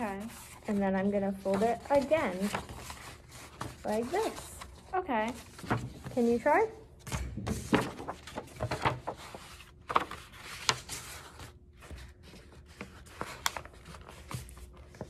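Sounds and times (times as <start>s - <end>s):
paper rustling and creasing: 0.0s - 6.7s, 7.5s - 15.0s.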